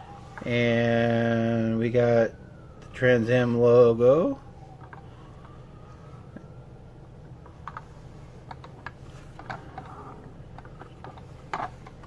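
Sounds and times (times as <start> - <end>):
low steady hum: 0.0 - 12.0
fingers tapping model car: 7.6 - 12.0.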